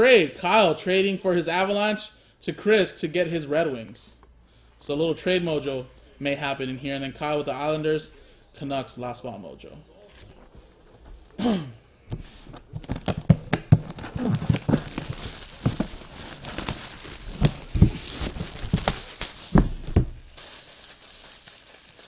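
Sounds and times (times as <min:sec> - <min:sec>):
plastic wrapping crinkling and tearing: 0:12.7 - 0:22.0.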